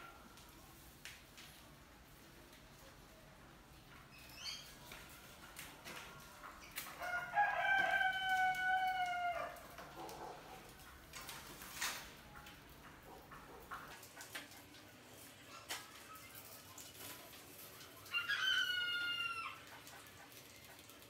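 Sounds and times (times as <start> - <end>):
rooster crowing: 7.0 - 9.6, 18.1 - 19.6.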